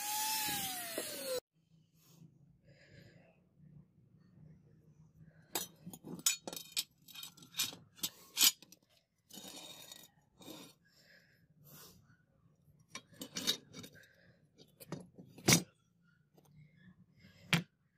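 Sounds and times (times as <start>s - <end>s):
metal scrape: 9.3s - 10.8s.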